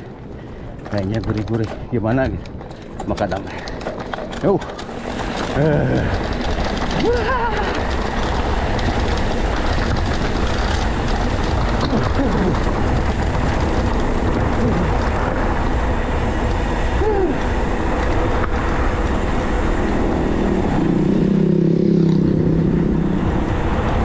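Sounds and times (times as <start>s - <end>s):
bike tyres rumbling on stones: 0.0s - 24.0s
wind on microphone: 5.4s - 24.0s.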